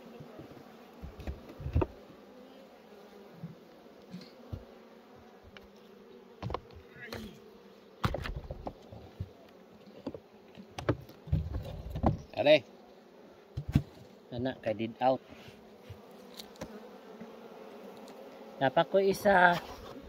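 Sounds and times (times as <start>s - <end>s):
bees buzzing: 0.0s - 20.0s
hive frames knocking: 1.0s - 2.0s, 6.4s - 7.3s, 8.0s - 9.4s, 10.0s - 12.4s, 13.5s - 14.1s.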